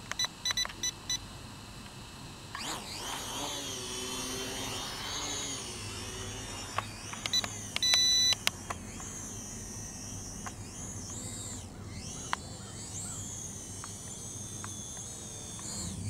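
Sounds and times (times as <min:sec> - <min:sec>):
drone propellers whining: 0:00.0 - 0:16.0
short electronic beeps: 0:07.3 - 0:08.4.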